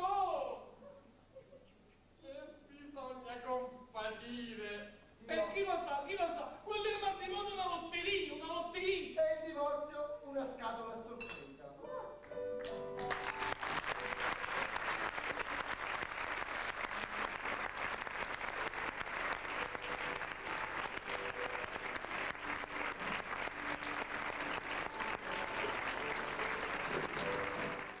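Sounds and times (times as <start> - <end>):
audience applauding: 12.6 - 28.0.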